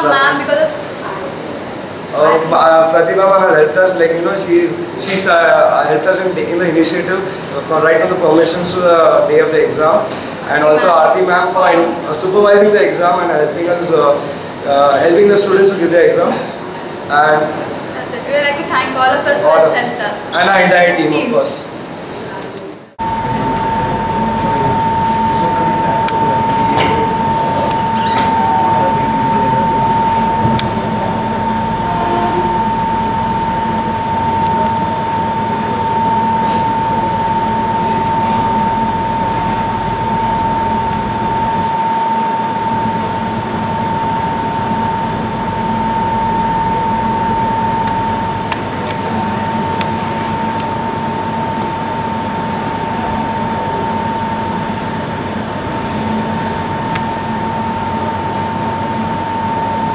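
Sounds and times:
computers humming: 0:00.0 - 0:59.9
mid-pitched whine: 0:00.0 - 0:59.9.

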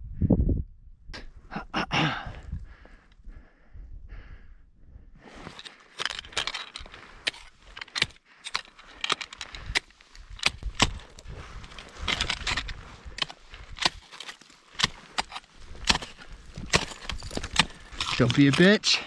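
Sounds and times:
crunching of ice and snow: 0:05.3 - 0:19.0
ice axes striking hard ice: 0:13.2 - 0:18.8.

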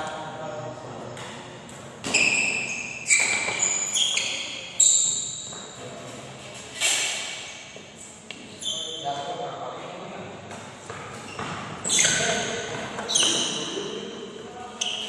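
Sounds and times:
shoes squeaking on court: 0:01.2 - 0:09.3, 0:10.6 - 0:14.0, 0:14.6 - 0:15.0
racket hitting shuttlecock: 0:03.1 - 0:04.2.

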